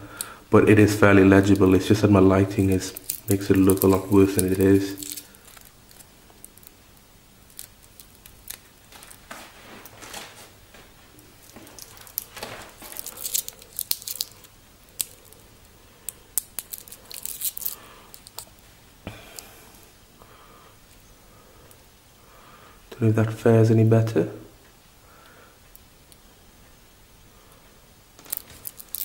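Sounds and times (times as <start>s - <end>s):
plastic wrapping crinkling: 0.9s - 15.5s, 16.3s - 18.6s, 28.2s - 29.0s.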